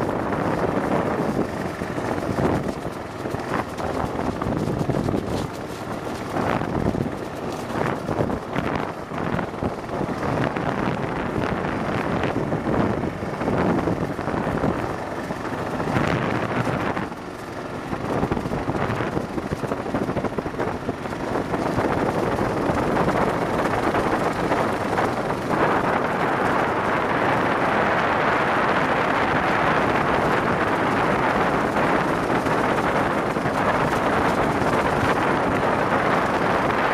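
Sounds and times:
motorcycle engine running: 0:00.0 - 0:36.9
wind buffeting microphone: 0:00.0 - 0:36.9.

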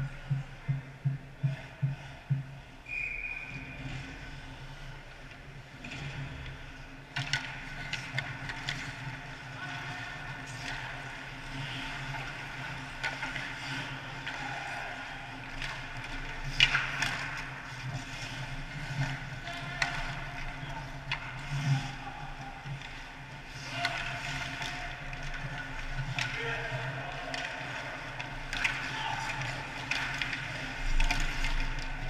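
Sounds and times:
skates scraping on ice: 0:03.5 - 0:32.0
hockey sticks and puck clacking: 0:05.3 - 0:32.0.

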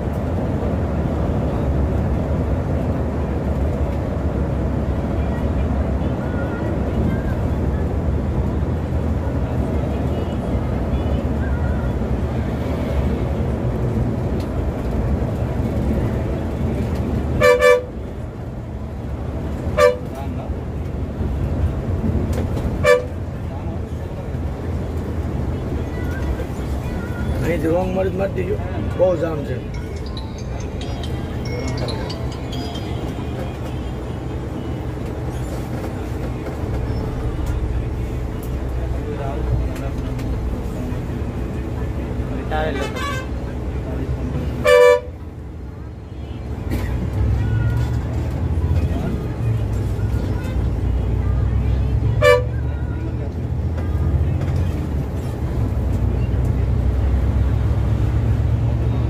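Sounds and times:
bus diesel engine rumble: 0:00.0 - 0:59.0
road noise: 0:00.0 - 0:59.0
horn toots: 0:17.4 - 0:17.9.

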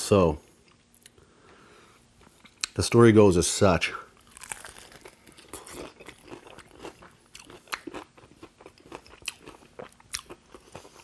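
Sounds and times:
crunchy chewing: 0:04.2 - 0:11.0.

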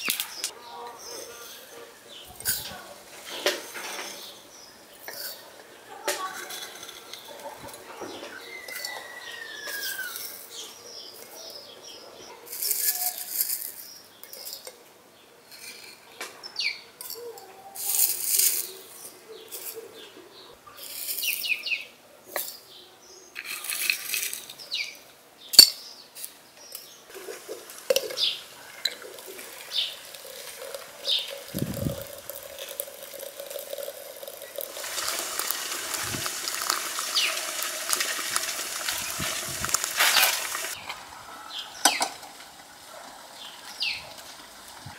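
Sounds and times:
dry tea rustling against glass: 0:05.0 - 0:11.6, 0:12.5 - 0:14.7, 0:17.8 - 0:19.8, 0:27.1 - 0:40.8
water pouring into teapot: 0:27.1 - 0:40.8.

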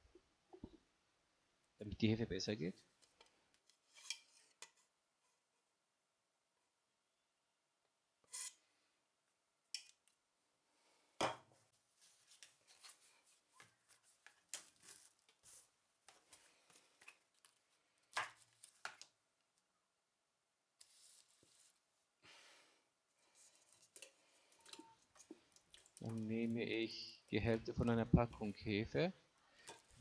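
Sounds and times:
rustling and scraping: 0:11.9 - 0:17.6.

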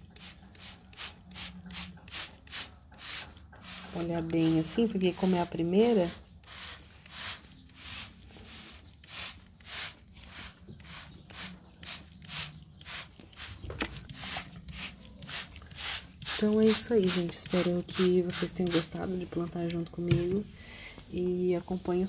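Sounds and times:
spray bottle squirting: 0:06.4 - 0:19.0.

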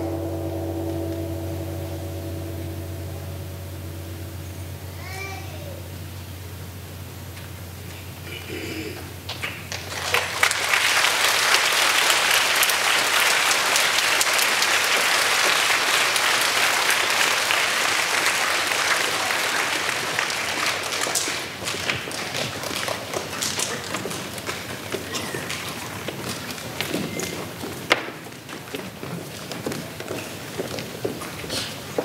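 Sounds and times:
large audience applauding: 0:09.2 - 0:31.9.

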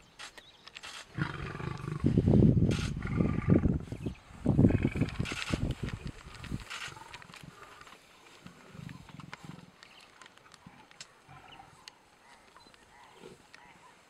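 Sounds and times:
lion growling low: 0:01.1 - 0:05.4.

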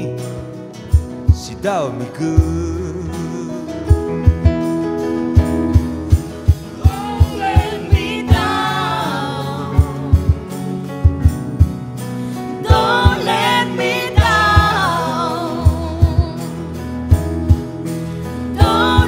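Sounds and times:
keyboard: 0:00.0 - 0:19.0
nylon-string guitar: 0:00.0 - 0:19.0
people singing: 0:06.5 - 0:10.7, 0:12.6 - 0:16.6, 0:18.5 - 0:19.0.

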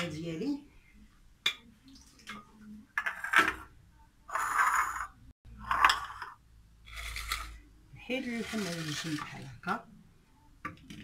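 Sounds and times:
dish scraping across surface: 0:04.3 - 0:07.6, 0:08.2 - 0:09.5
dishes clattering on hard surface: 0:04.7 - 0:06.4.

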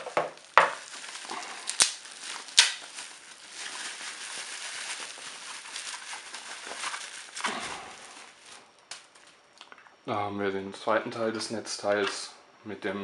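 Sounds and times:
bubble wrap crinkling: 0:00.0 - 0:09.4
sharp crackles: 0:00.0 - 0:09.4.

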